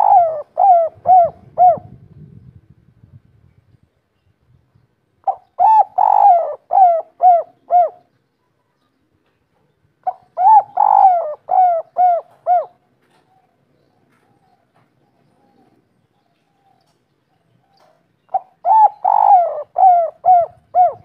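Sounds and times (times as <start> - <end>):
dove cooing: 0.0 - 2.1, 5.2 - 8.1, 10.0 - 17.0, 17.6 - 21.0.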